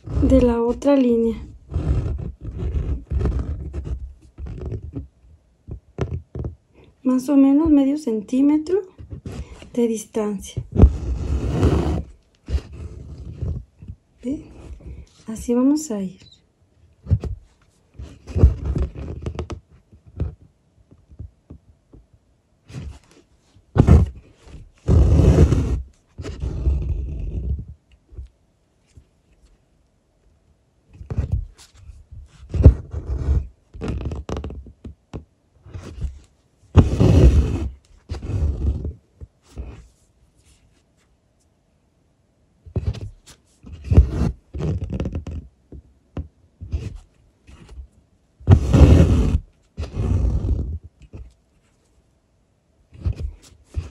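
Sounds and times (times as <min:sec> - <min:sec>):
thread pulled through cloth: 0:00.0 - 0:05.1, 0:10.6 - 0:16.4, 0:23.8 - 0:29.6, 0:35.6 - 0:41.1, 0:42.8 - 0:45.3, 0:48.5 - 0:51.9.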